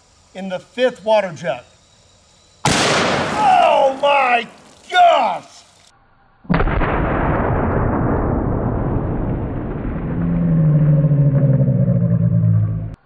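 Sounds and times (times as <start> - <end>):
slowed gunshot low rumble: 2.7 - 3.4, 6.5 - 12.9.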